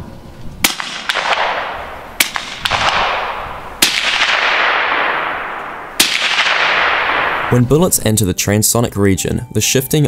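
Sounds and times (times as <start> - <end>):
rifle shots with echo: 0.6 - 7.7.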